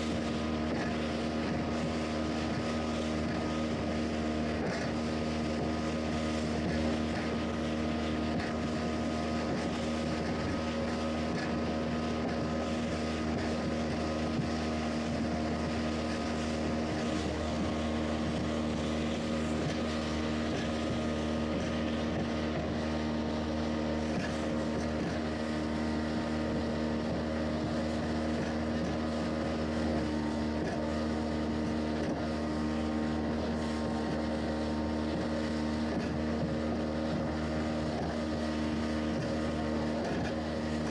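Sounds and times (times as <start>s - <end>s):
motorboat engine running: 0.0s - 40.9s
water spray rushing: 0.0s - 40.9s.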